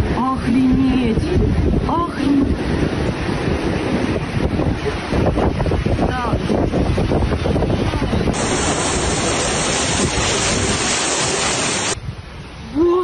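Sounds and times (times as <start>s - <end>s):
strong wind buffeting microphone: 0.0s - 13.0s
floodwater pouring down: 8.3s - 12.0s.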